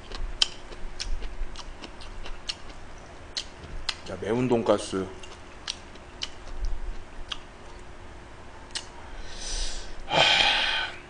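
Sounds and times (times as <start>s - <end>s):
quiet eating sounds: 0.0s - 7.9s
soft breathy hiss: 8.9s - 11.0s.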